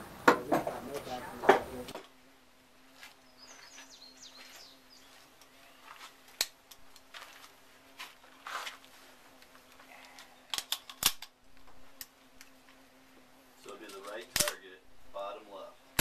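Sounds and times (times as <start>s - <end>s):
faint bird chirps: 3.3s - 5.9s
sharp metallic clicks: 13.9s - 14.6s.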